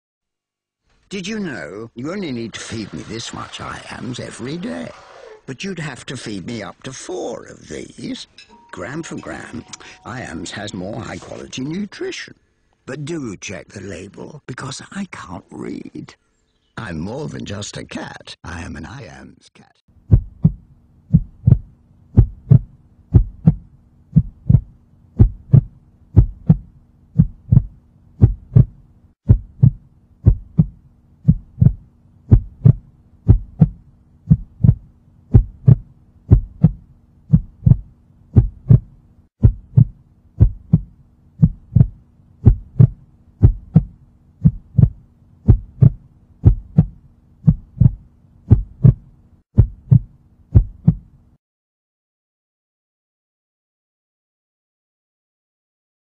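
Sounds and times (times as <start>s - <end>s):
faint steady hum: 5.2s - 14.5s, 20.0s - 51.4s
heartbeat thumps: 20.0s - 51.1s.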